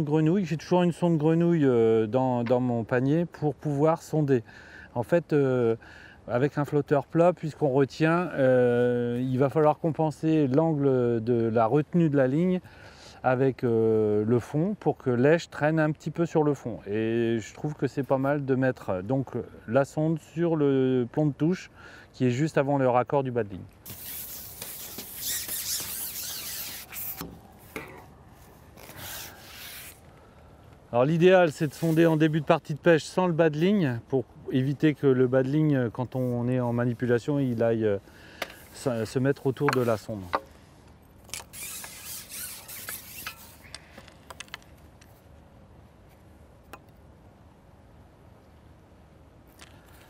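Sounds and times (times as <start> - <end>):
faint steady background noise: 0.0 - 50.0
fishing pole rubbing through hands: 23.8 - 30.1, 31.6 - 32.3, 38.5 - 40.5, 41.3 - 43.7.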